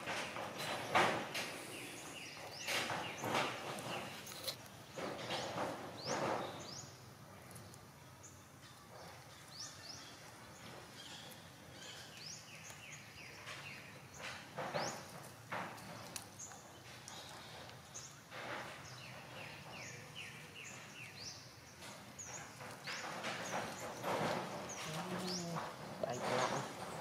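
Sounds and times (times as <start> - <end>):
rustling on leaf litter: 23.8 - 27.0.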